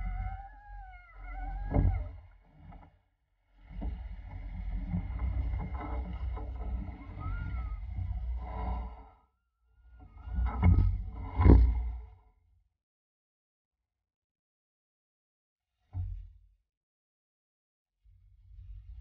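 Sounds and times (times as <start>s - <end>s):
water rushing along hull: 3.8s - 9.1s.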